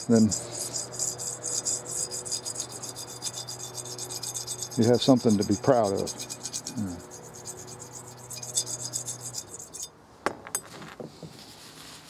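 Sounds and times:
steel wool scrubbing metal: 0:00.0 - 0:09.9
sharp knocks: 0:10.2 - 0:11.3.

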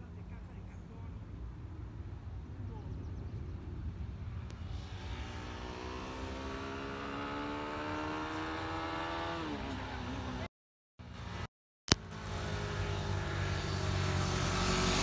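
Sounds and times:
low rumble: 0:01.1 - 0:06.1
distant motorcycle engine revving: 0:04.3 - 0:10.5.

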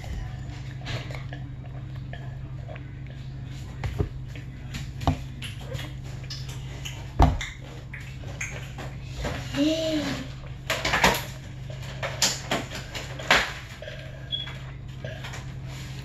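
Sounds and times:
drinking from a cup: 0:00.0 - 0:07.2.

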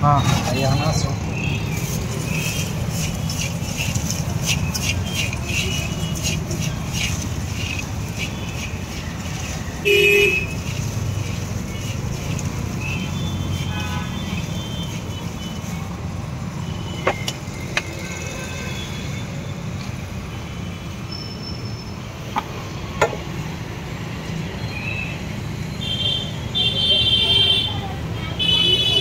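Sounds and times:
road traffic rumble: 0:00.0 - 0:29.0.

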